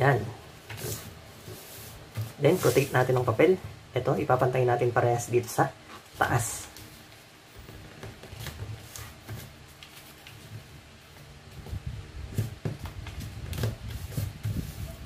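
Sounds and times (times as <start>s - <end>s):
paper rustling and creasing: 0.6s - 3.4s, 6.0s - 15.0s.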